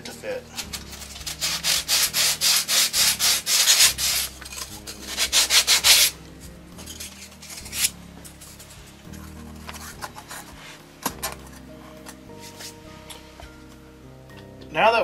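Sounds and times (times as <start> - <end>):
sanding foam: 0.9 - 6.2.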